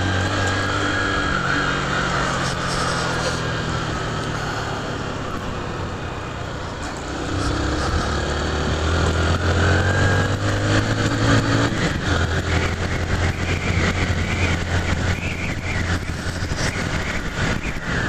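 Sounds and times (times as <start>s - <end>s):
motorcycle engine running: 0.0s - 18.0s
wind noise on microphone: 6.8s - 18.0s.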